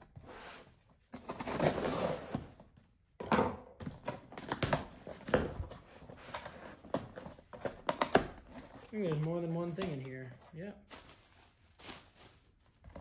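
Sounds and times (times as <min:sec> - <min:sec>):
cardboard crackling and rustling: 0:08.4 - 0:13.0.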